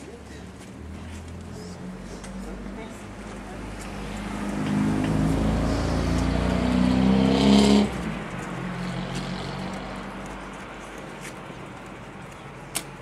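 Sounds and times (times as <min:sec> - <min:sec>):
vehicle engine revving: 0:03.9 - 0:10.3.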